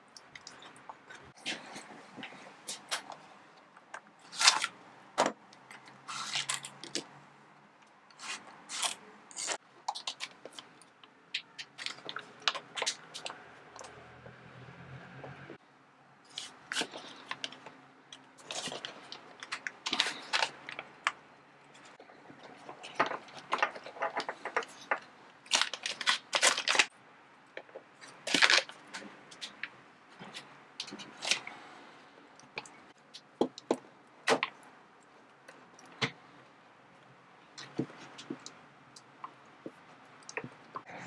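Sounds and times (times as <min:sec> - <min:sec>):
plastic bag crinkling: 0:18.4 - 0:21.2, 0:22.5 - 0:26.9, 0:28.0 - 0:29.6.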